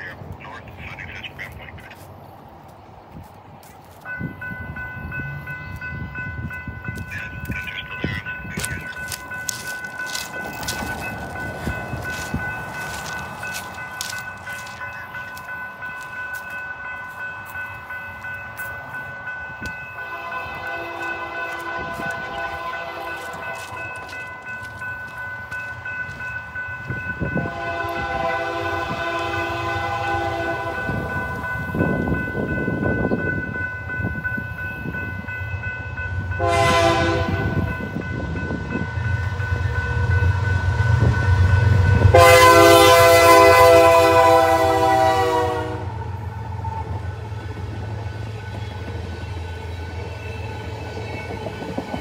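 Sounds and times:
crossing bell ringing: 3.9 - 52.0
train air horn blasts: 20.0 - 23.6, 27.3 - 31.0, 36.4 - 37.7, 40.7 - 46.0.

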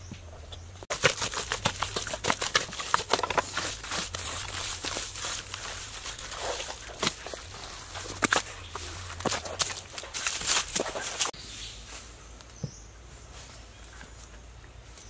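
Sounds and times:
straw crackling: 0.0 - 11.4
wet mud squelching: 0.2 - 11.4.

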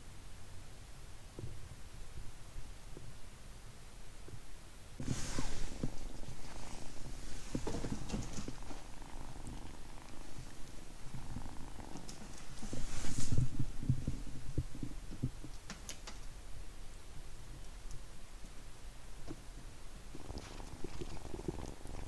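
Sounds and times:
hand rustling near microphone: 5.0 - 15.3
kitten purring: 5.0 - 16.3, 19.6 - 22.0.

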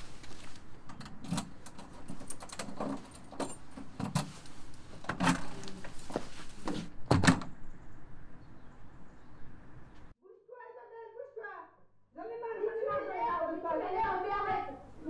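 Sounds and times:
keys jingling: 1.0 - 4.4
footsteps: 3.6 - 6.9.

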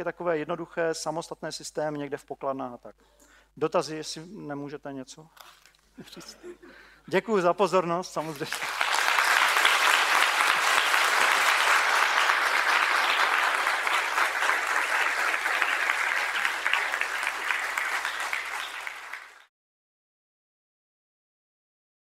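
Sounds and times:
audience applauding: 8.2 - 19.5.

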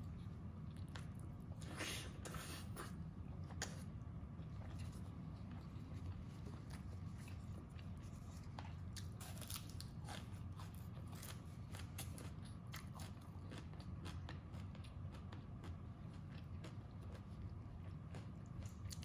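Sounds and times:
crunching green onion: 5.6 - 19.0.

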